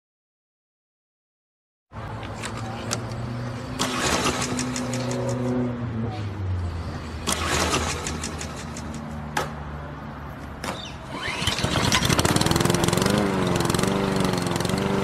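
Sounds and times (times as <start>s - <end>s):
small engine puttering: 2.4s - 5.6s, 7.2s - 9.1s, 10.7s - 15.0s
sharp click: 3.8s - 5.5s, 7.2s - 9.6s.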